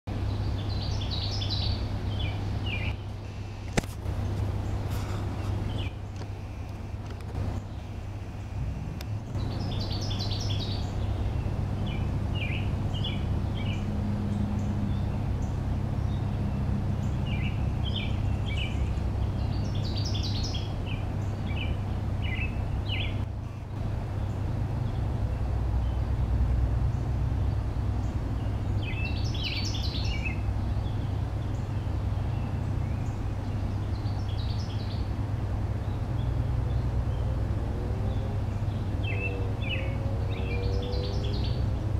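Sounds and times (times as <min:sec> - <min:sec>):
steady low rumble: 0:00.1 - 0:40.4
songbirds chirping: 0:00.1 - 0:41.9.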